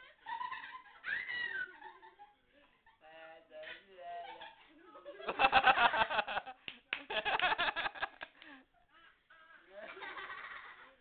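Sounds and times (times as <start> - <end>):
person laughing heartily: 5.2 - 8.7.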